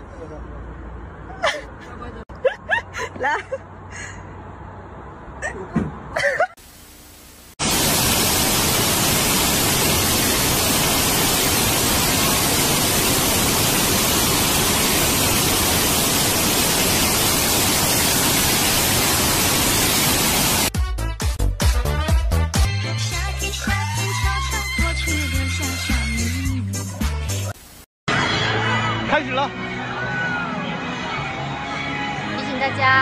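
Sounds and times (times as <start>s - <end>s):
water rushing from surf machine: 7.6s - 20.7s.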